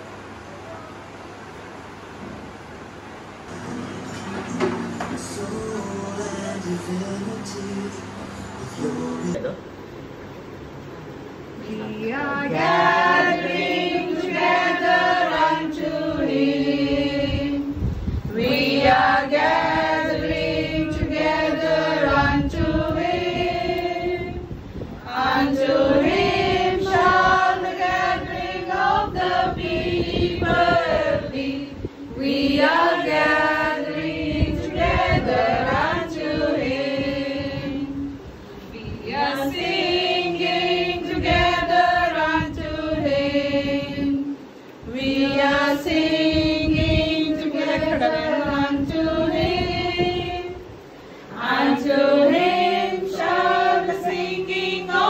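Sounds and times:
group singing a hymn: 0:11.6 - 0:55.0.

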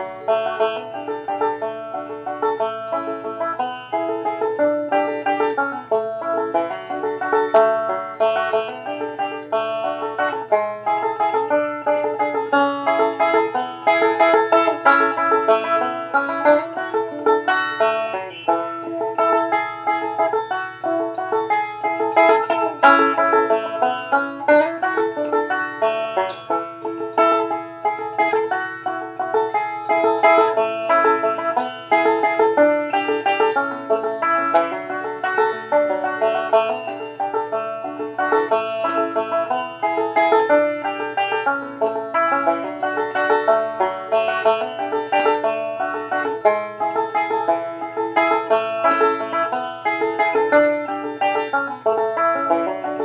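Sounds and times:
banjo playing: 0:00.0 - 0:53.0.

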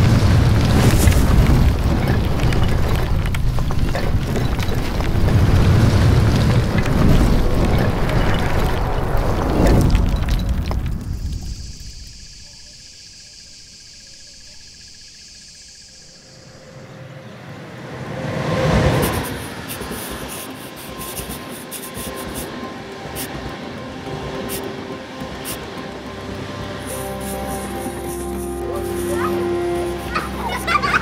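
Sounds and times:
low ambient bed: 0:00.0 - 0:31.0
whooshes: 0:16.2 - 0:22.6
sharp scratchy ticks: 0:18.9 - 0:31.0
soft high hiss: 0:19.0 - 0:31.0.

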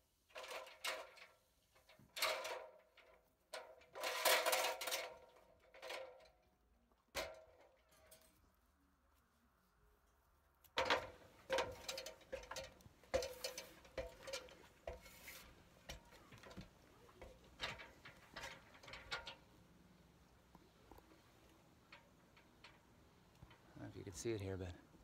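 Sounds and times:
metal ladder clanking: 0:00.3 - 0:06.4, 0:07.1 - 0:08.4, 0:10.8 - 0:19.5.

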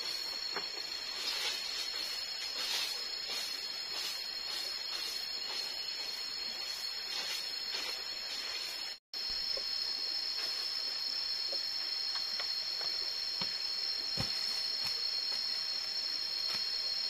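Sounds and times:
forest insects droning: 0:00.0 - 0:17.0.

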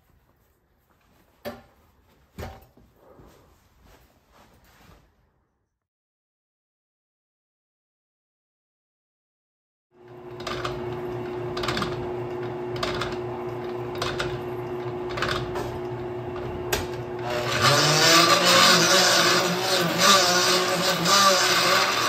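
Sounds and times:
die grinder grinding rubber tire: 0:10.0 - 0:22.0.

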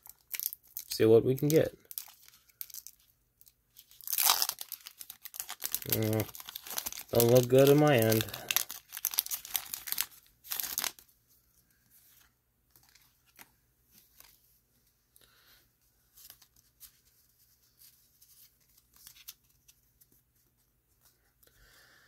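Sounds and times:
foil wrapper crinkling and tearing: 0:00.0 - 0:11.1.

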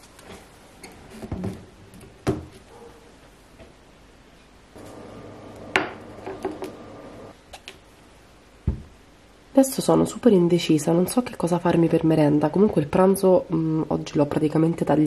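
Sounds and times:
low steady hum: 0:04.5 - 0:14.8.

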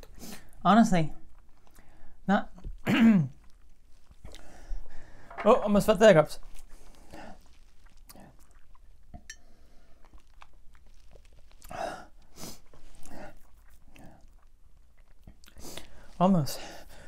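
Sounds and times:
person chewing chips: 0:02.8 - 0:04.9, 0:06.4 - 0:16.2.

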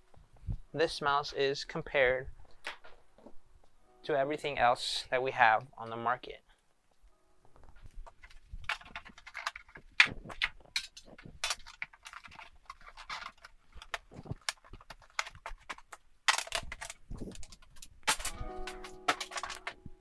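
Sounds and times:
packaging rustling and scraping: 0:07.5 - 0:20.0.

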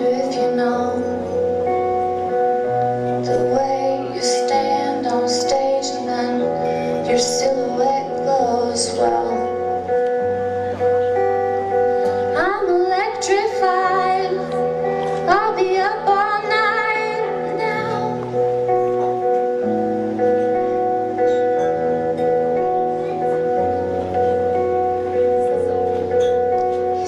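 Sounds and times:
woman singing: 0:00.0 - 0:01.8, 0:03.2 - 0:09.9, 0:12.1 - 0:18.5
sustained instrumental chords: 0:00.0 - 0:27.0.

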